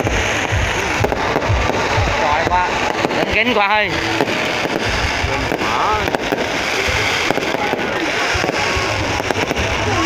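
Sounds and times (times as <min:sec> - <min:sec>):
fireworks bangs and crackles: 0:00.0 - 0:10.0.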